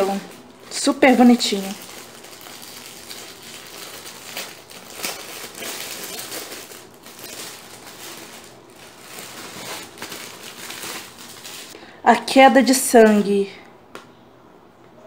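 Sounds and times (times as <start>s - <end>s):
metallic gift wrap crinkling: 0.0s - 11.8s.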